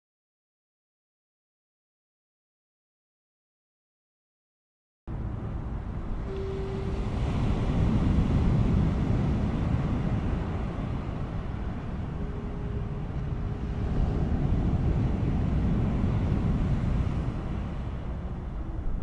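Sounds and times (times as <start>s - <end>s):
city rumble: 5.1s - 19.0s
distant foghorns: 5.1s - 19.0s
wind noise: 5.1s - 19.0s.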